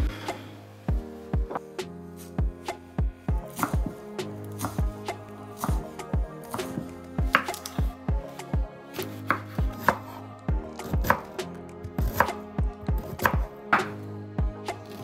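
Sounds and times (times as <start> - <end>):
knife slicing onion on board: 3.5 - 3.9, 4.5 - 4.8, 9.0 - 10.1, 12.0 - 12.4.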